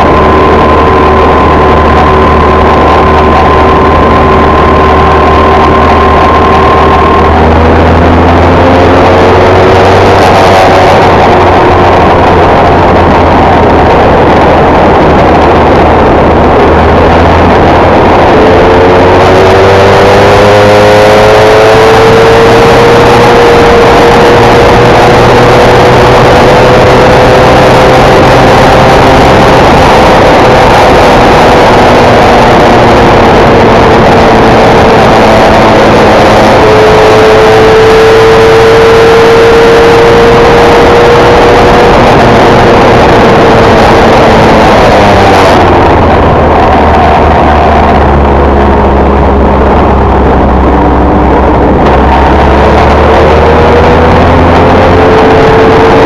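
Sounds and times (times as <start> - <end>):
race car engine at high revs: 0.0 - 56.0
steady rushing noise: 0.0 - 56.0.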